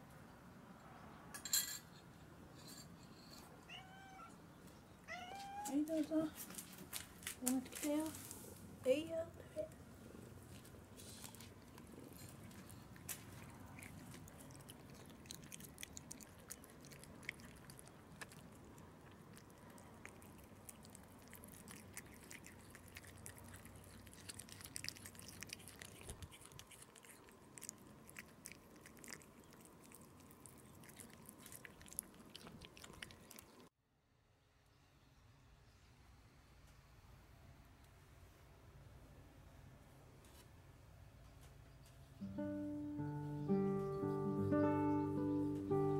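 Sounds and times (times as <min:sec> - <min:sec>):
cats chewing fish: 0:09.7 - 0:33.7.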